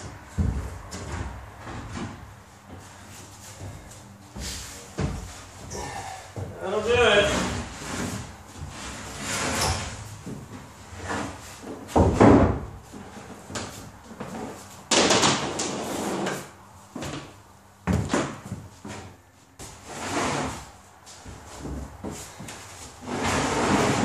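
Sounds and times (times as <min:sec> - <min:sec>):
wood scraping on wood: 0:06.8 - 0:11.9, 0:19.6 - 0:20.8, 0:21.5 - 0:24.0.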